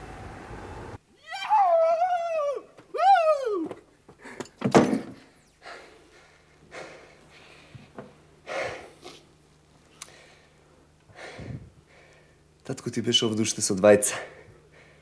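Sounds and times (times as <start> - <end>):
man breathing hard: 5.5 - 9.2, 10.0 - 12.5, 14.2 - 15.0.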